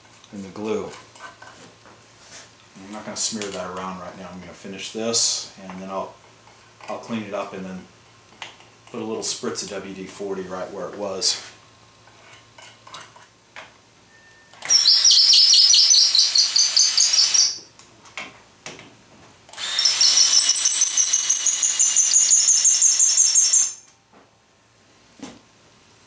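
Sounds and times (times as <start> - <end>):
cordless drill whining: 14.6 - 17.6, 19.5 - 23.8.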